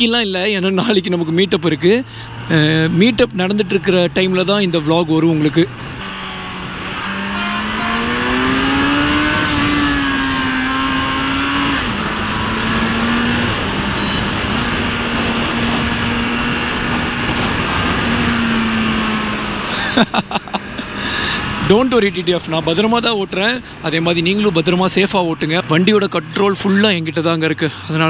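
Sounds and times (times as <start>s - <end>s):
motorcycle engine running: 5.8s - 22.0s.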